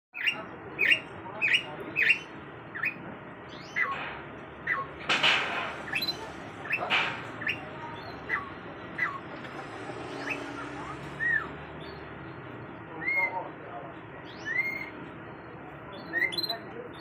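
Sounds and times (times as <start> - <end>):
canary chirping: 0.1 - 13.4, 14.2 - 17.0
loud rough bird sounds: 0.2 - 13.5.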